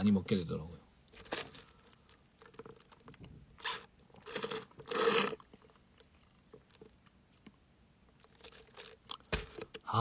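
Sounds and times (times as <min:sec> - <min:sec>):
slurping through a straw: 0:03.6 - 0:06.8.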